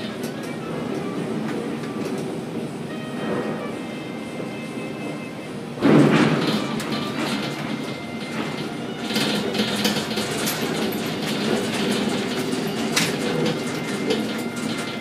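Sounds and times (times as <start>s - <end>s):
crane clattering and knocking: 0.0s - 15.0s
heavy crane clunk: 5.8s - 15.0s.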